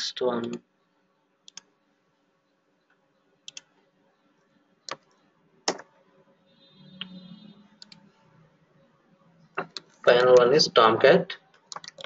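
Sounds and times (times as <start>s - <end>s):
mouse and keyboard clicks: 4.9s - 5.9s, 11.6s - 12.0s.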